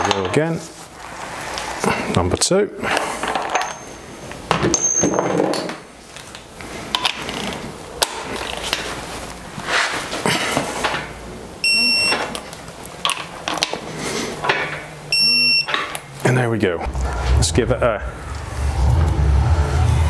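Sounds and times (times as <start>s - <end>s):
torque wrench beep: 11.6s - 12.3s, 15.1s - 15.8s.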